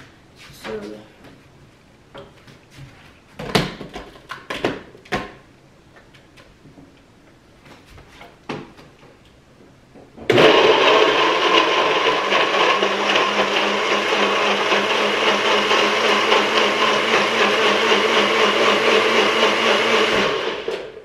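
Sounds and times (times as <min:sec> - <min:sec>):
electric blender running: 0:10.3 - 0:21.0.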